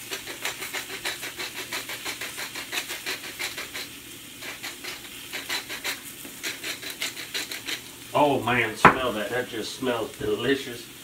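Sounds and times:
spice grinder grinding: 0.0 - 8.1
oil sizzling in a pan: 0.0 - 11.0.

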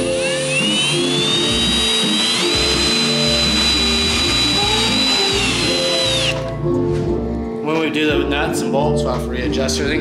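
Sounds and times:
cordless drill whining: 0.0 - 6.6
background music: 0.0 - 10.0.

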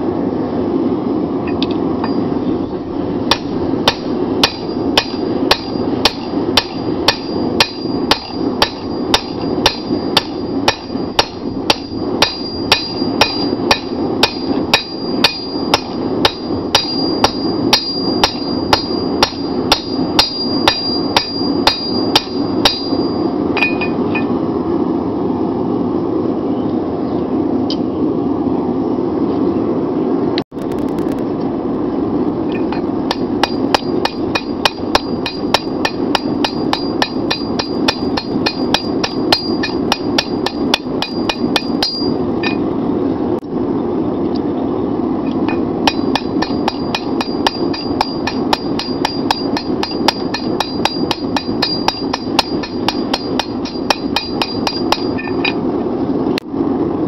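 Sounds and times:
steady rushing noise: 0.0 - 57.0
hammer blows ringing on anvil: 3.3 - 24.3, 32.6 - 42.6, 45.5 - 55.6.

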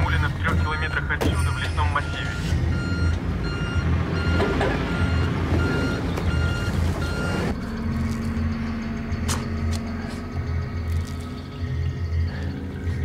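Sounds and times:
short electronic beeps: 0.0 - 7.6
pulsing low bass: 0.0 - 13.0.

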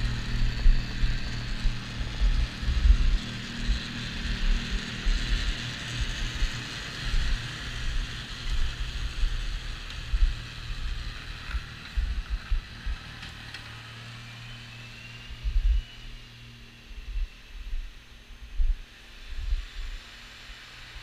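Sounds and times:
tractor engine running: 0.0 - 14.4
snowblower hissing: 0.0 - 17.0, 18.8 - 21.0.

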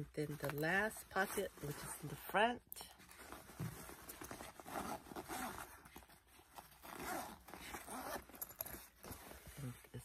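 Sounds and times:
fabric rustling: 0.0 - 10.0
zipper pulled open: 3.0 - 9.9.

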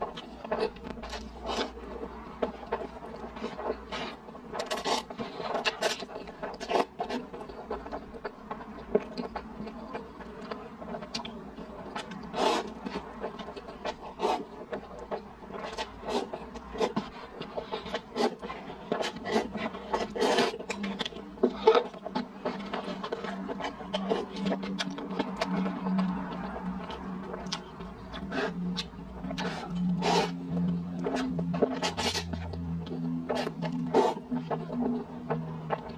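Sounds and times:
wet chewing and mouth smacks: 0.1 - 35.9
person slurping noodles: 12.3 - 12.8, 19.0 - 20.6, 29.3 - 30.4.

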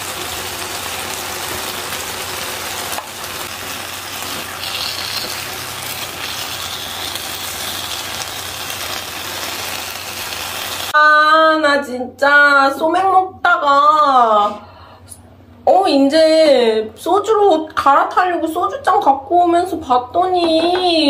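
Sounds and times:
stew sizzling in a foil pan: 0.0 - 11.0.

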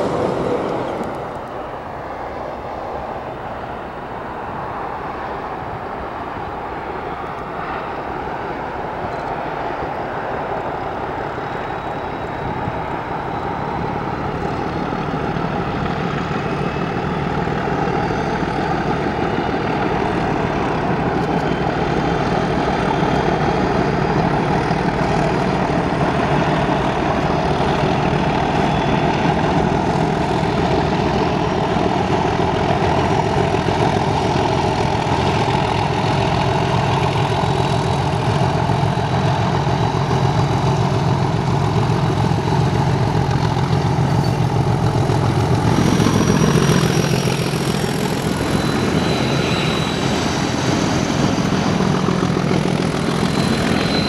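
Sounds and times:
diesel locomotive engine droning: 0.0 - 54.0.

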